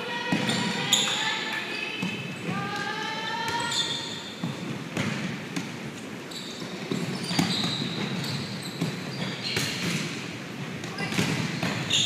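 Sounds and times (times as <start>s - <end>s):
shoes squeaking on court: 0.3s - 2.7s, 3.5s - 12.0s
volleyball smacks and bounces: 4.4s - 5.8s, 8.8s - 11.9s.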